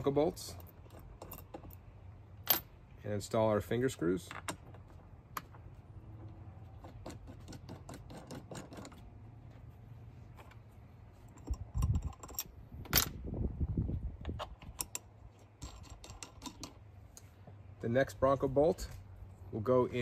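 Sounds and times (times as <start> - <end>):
metal bolts clicking and clinking: 0.0 - 2.8, 4.2 - 9.1, 11.2 - 13.2, 14.2 - 17.2.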